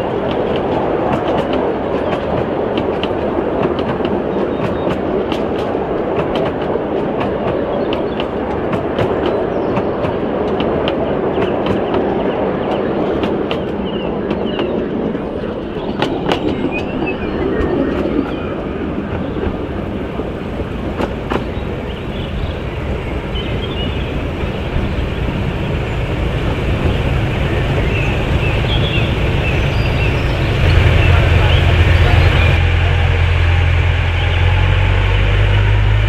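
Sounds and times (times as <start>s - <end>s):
diesel locomotive engines running: 0.0s - 36.0s
miniature railway carriages rolling: 0.0s - 36.0s
wheels clicking over rail joints: 0.0s - 36.0s.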